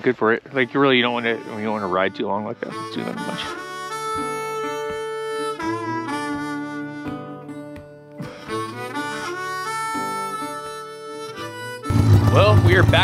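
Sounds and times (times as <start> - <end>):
slow tune of long held notes: 0.0 - 13.0.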